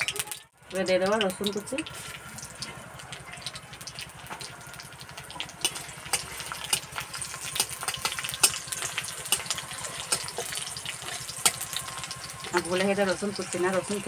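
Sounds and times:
garlic and chillies sizzling in oil: 0.0 - 14.0
metal spatula stirring: 5.4 - 14.0.

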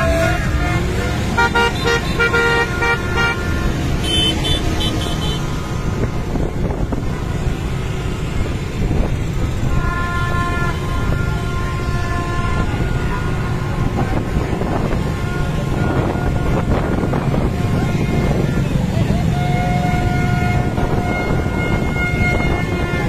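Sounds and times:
higher horn beeps: 0.0 - 5.8
dense traffic rumble: 0.0 - 23.0
vehicle horns honking: 0.0 - 23.0.

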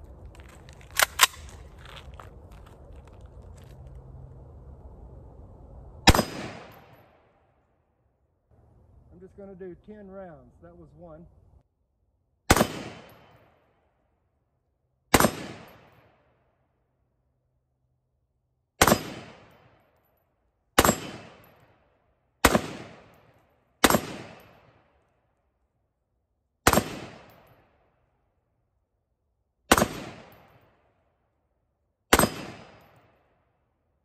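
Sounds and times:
rifle gunshots: 6.1 - 6.8, 12.5 - 13.4, 15.1 - 16.0, 18.8 - 19.6, 20.8 - 21.5, 22.4 - 23.2, 23.8 - 24.8, 26.6 - 27.4, 29.7 - 30.6, 32.1 - 32.9.

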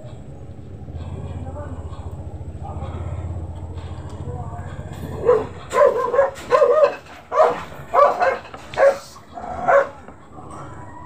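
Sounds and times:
dog yipping: 5.2 - 9.1.

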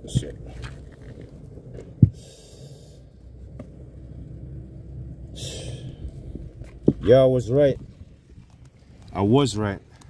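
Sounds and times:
low rumble: 0.0 - 9.2
hiss: 2.2 - 3.0, 5.4 - 6.0.

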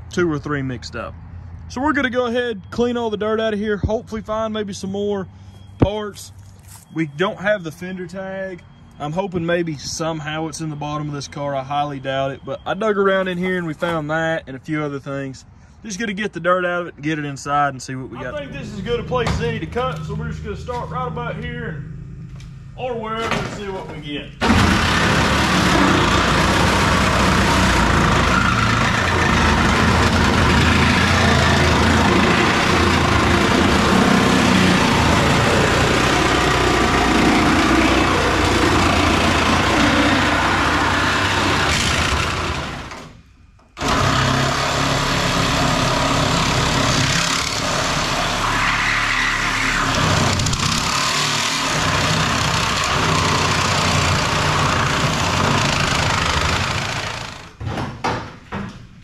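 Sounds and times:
power tool cutting sheet metal: 24.4 - 43.2, 43.8 - 57.6.

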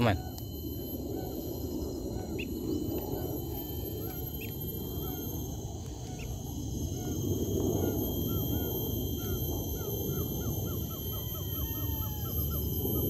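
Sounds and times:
birds chirping: 0.0 - 13.0
high-pitched insect drone: 0.0 - 13.0.

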